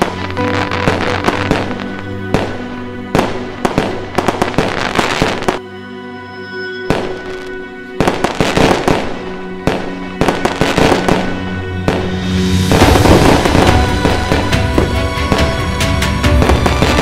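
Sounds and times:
fireworks bangs and crackles: 0.0 - 5.6, 6.9 - 17.0
music with long held notes: 0.0 - 17.0.

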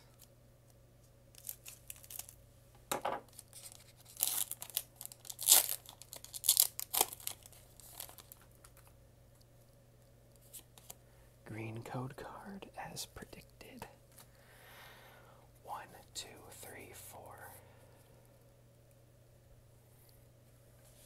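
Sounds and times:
foil wrapper crinkling and tearing: 1.3 - 2.4, 3.3 - 8.9
scissors cutting foil pack: 3.3 - 8.4.

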